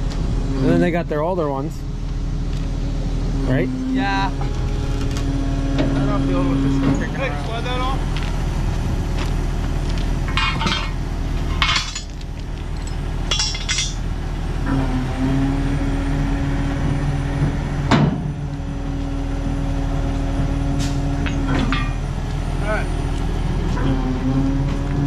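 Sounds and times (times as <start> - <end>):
steady tone: 0.0 - 12.0
engine running: 0.0 - 25.0
heavy metal parts clanking: 4.4 - 8.4, 9.9 - 14.1, 20.8 - 22.3.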